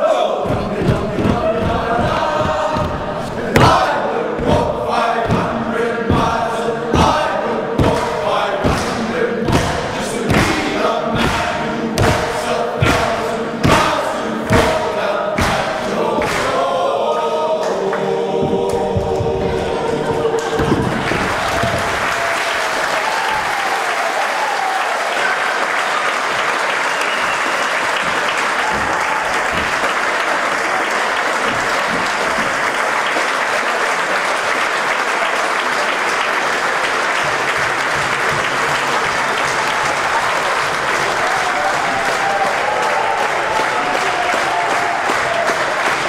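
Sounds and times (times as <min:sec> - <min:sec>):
audience applauding: 0:18.8 - 0:46.0.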